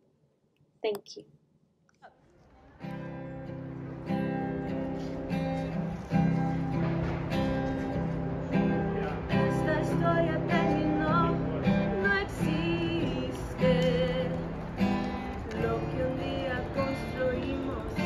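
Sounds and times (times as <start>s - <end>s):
acoustic guitar strumming: 2.8s - 18.0s
woman singing: 9.3s - 14.5s, 15.5s - 18.0s.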